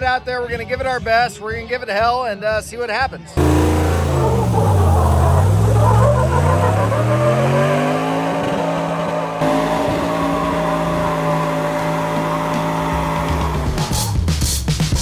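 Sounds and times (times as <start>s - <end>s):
engine revving hard: 3.4s - 15.0s.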